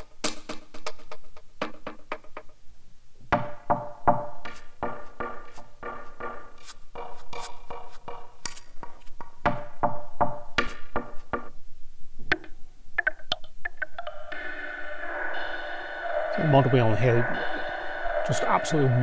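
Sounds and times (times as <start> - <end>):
synth pitched tapping hits: 3.4 - 11.2, 12.3 - 19.0.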